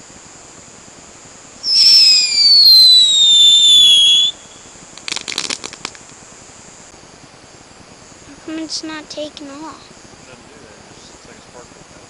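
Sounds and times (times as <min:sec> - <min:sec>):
firework whistle sliding down: 0:01.6 - 0:04.7
firework crackling pops: 0:01.6 - 0:06.3.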